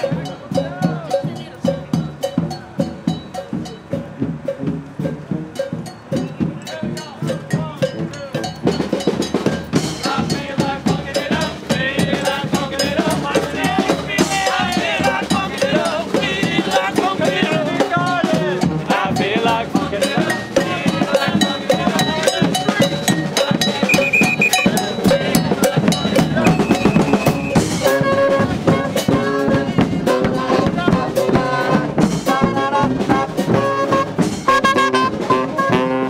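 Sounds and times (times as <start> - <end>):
bass drum beat: 0.0 - 34.5
brass band playing: 23.8 - 25.2, 26.3 - 30.7, 31.6 - 36.0.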